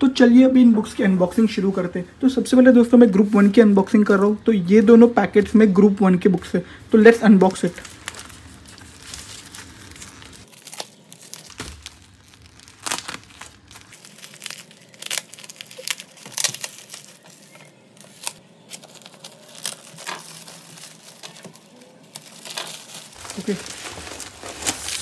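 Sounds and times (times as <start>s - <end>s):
plastic crinkling and tearing: 7.4s - 25.0s
scissors cutting plastic: 9.1s - 23.2s.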